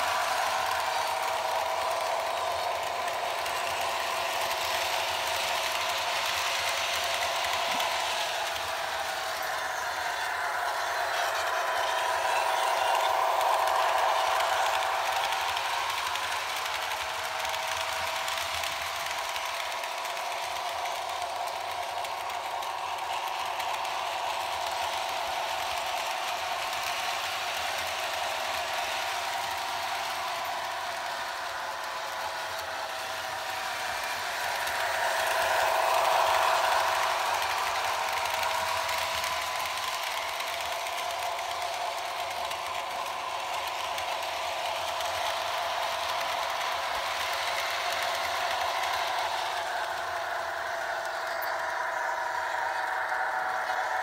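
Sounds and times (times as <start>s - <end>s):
model train wheels rattling on track: 0.0s - 54.0s.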